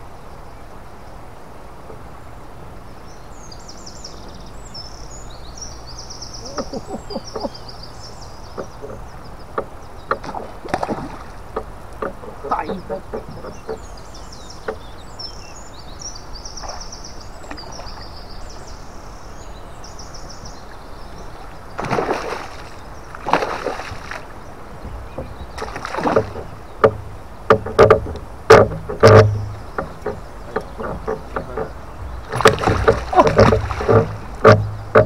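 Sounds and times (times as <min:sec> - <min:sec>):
fish splashing in water: 0:21.8 - 0:24.4, 0:25.6 - 0:26.6, 0:32.2 - 0:34.7.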